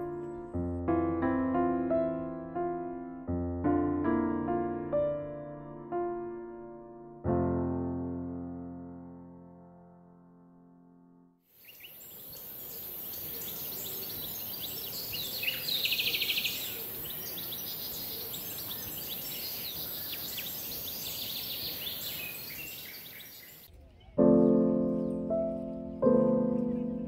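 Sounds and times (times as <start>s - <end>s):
music: 0.0s - 11.4s, 24.2s - 27.0s
small birds chirping: 11.5s - 27.0s.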